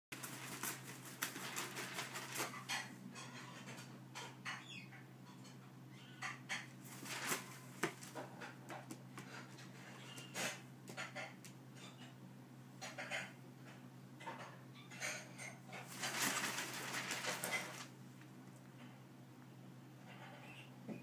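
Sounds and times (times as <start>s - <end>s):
wings flapping: 0.2s - 2.8s, 6.9s - 8.0s, 15.8s - 17.9s.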